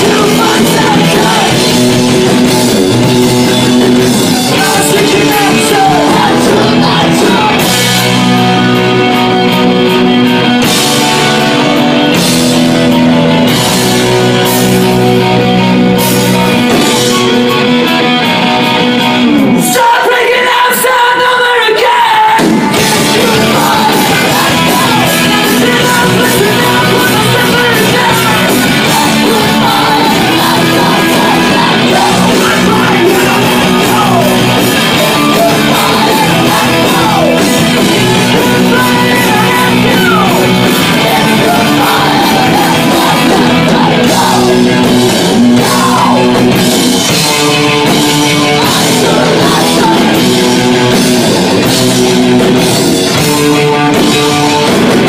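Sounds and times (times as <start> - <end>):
singer shouting and singing: 0.0 - 11.8, 18.6 - 55.0
bass and drums: 0.0 - 20.8, 22.2 - 55.0
electric guitars: 0.0 - 55.0.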